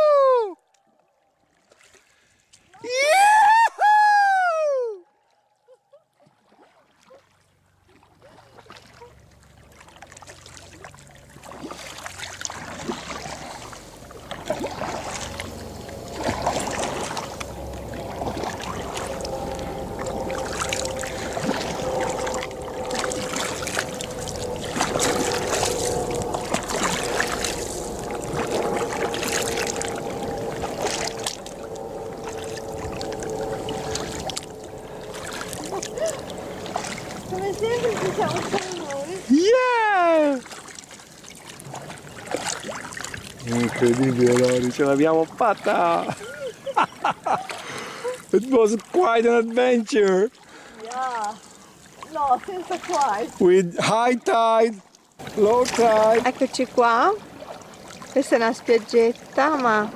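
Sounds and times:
paddle strokes splashing: 0.7s - 3.0s, 5.2s - 59.9s
steady drone: 12.0s - 39.6s.

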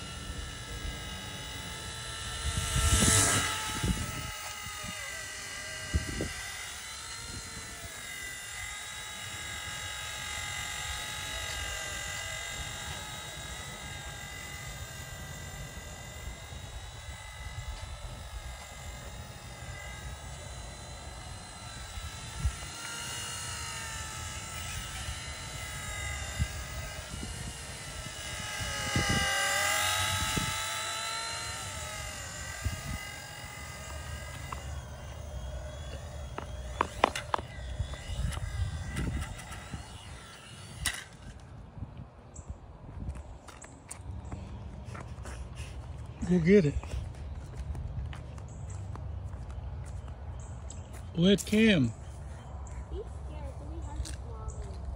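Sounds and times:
toy helicopter motor whining: 0.0s - 54.9s
sharp clicks: 1.5s - 41.5s.

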